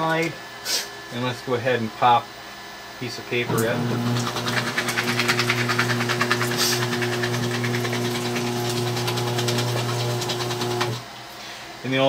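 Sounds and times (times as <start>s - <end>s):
paper shredder motor humming: 3.4s - 11.1s
paper shredding crackle: 3.8s - 11.0s.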